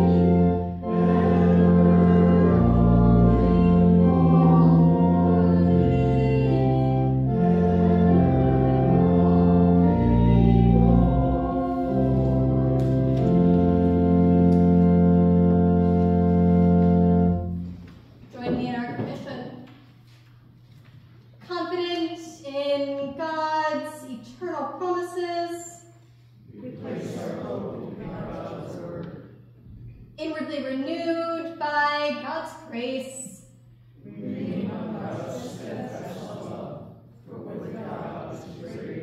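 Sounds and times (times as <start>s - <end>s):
church organ playing hymn chords: 0.0s - 18.0s.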